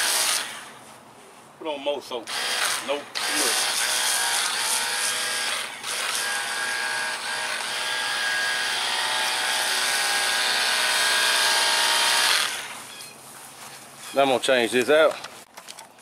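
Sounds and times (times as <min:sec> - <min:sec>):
pump motor whining: 0:02.3 - 0:12.8.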